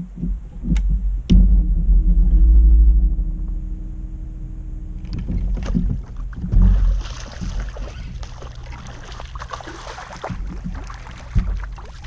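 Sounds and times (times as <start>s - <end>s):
steady low hum: 0.0s - 12.0s
knocks and heavy thump: 0.1s - 8.2s, 10.3s - 11.8s
fish thrashing and splashing: 5.4s - 12.0s.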